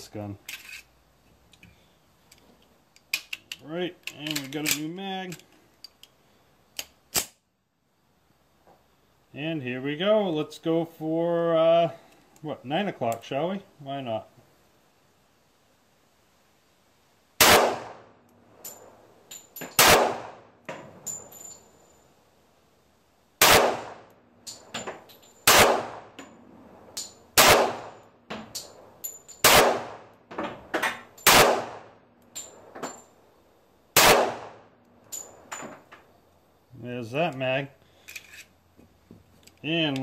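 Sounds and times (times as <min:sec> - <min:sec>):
faint clinks and cracks: 0:00.4 - 0:07.0, 0:18.3 - 0:19.8, 0:24.4 - 0:25.5, 0:28.3 - 0:29.4, 0:32.2 - 0:33.2, 0:34.8 - 0:36.2, 0:37.9 - 0:38.6
pistol shots: 0:17.4 - 0:18.1, 0:19.8 - 0:20.5, 0:23.4 - 0:24.1, 0:25.4 - 0:26.2, 0:27.4 - 0:28.0, 0:29.4 - 0:30.1, 0:31.2 - 0:32.0, 0:34.0 - 0:34.6.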